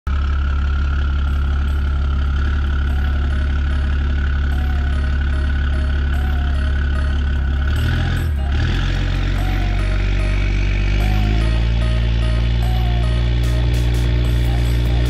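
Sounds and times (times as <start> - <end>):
pickup engine idling: 0.1 - 15.0.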